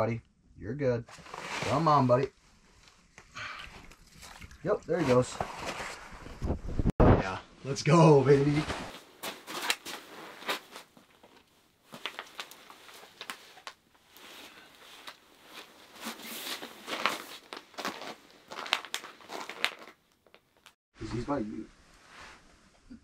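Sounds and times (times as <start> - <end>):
clothing rustling: 1.1 - 3.2, 8.3 - 20.8
plastic water bottle crinkling: 11.1 - 13.8, 14.4 - 20.8.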